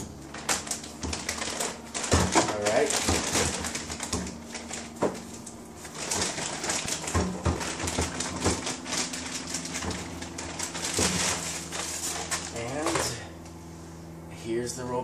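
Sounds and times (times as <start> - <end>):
packing material rustling: 0.2 - 13.3.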